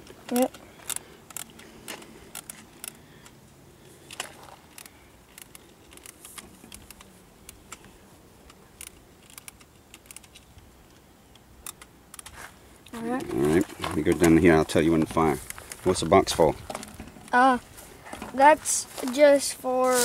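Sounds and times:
hands handling rifles clicking: 0.0s - 3.4s, 4.0s - 15.9s.

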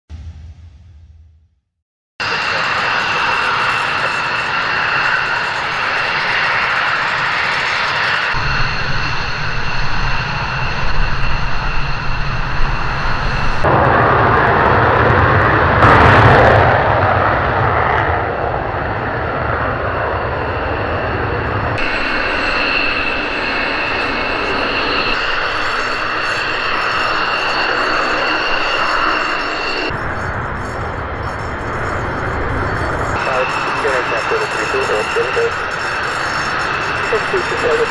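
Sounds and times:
jet engines whining: 2.2s - 37.9s.

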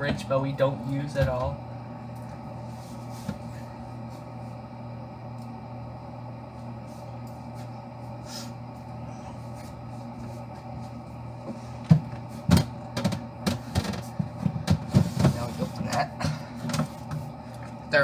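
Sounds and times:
steady low hum: 0.0s - 18.0s
items knocking in refrigerator: 11.8s - 17.0s.

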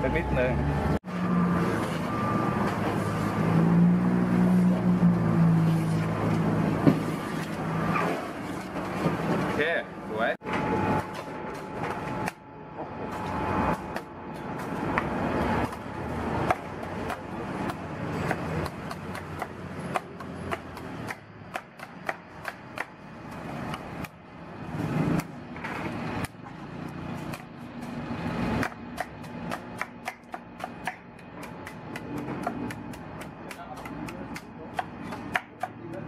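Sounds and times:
cleaver chopping coconut: 16.4s - 24.2s, 26.2s - 36.0s.

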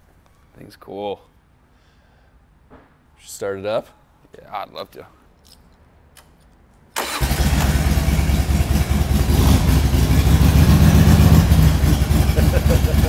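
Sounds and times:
motorcycle engine starting and idling: 7.0s - 13.0s.

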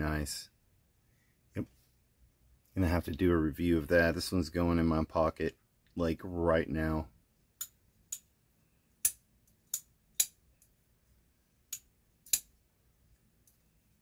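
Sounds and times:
folding knife clicking: 11.7s - 12.5s.

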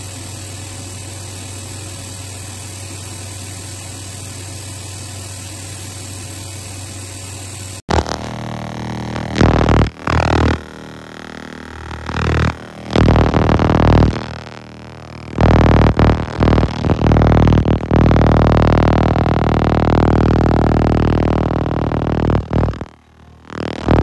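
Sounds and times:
electronic music with synthesizer: 7.9s - 24.0s.

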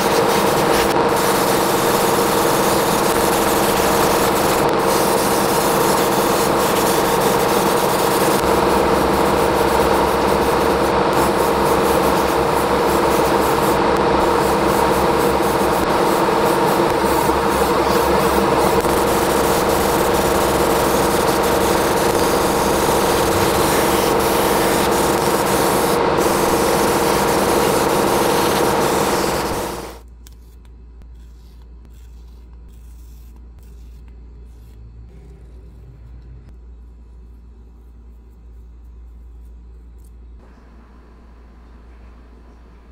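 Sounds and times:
power tool running: 0.0s - 30.0s
faint low hum: 30.1s - 42.9s.

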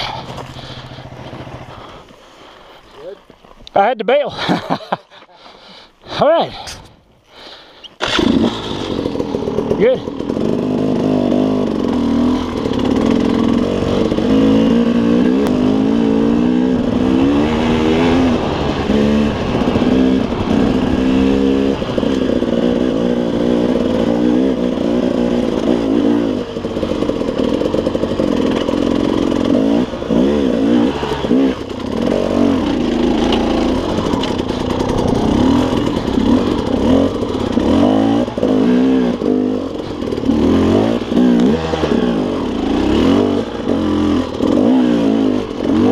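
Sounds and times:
dirt bike engine revving: 0.0s - 2.6s, 7.4s - 45.9s.

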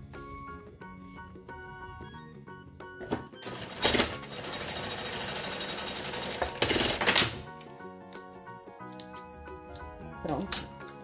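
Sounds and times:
light background music: 0.0s - 11.0s
sewing machine running fast: 3.4s - 7.3s.

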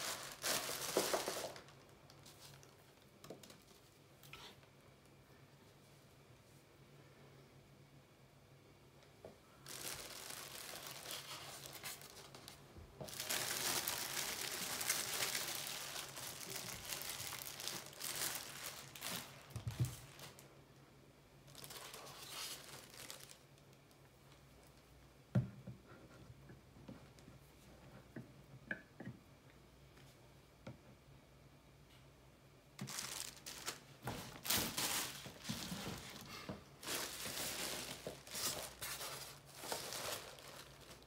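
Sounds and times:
plastic bag crinkling: 0.0s - 3.8s, 9.6s - 20.5s, 21.5s - 24.8s, 32.8s - 41.0s.

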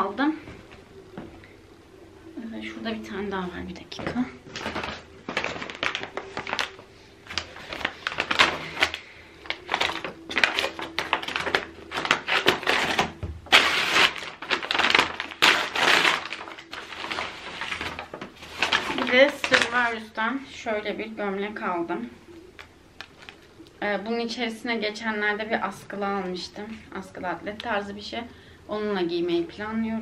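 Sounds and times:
stiff paper crinkling: 4.4s - 20.1s, 22.6s - 23.6s.

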